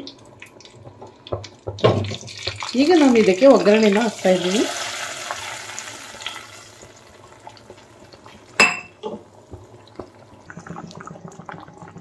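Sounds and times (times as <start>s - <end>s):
curry bubbling with small ticks: 0.0s - 4.0s, 6.8s - 12.0s
hot oil sizzling: 0.0s - 12.0s
metallic clink of cookware: 8.6s - 9.0s.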